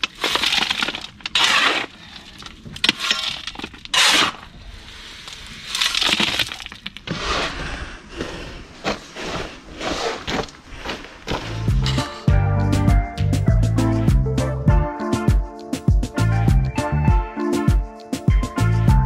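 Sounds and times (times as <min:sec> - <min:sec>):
stones scraping and clattering: 0:00.0 - 0:07.8.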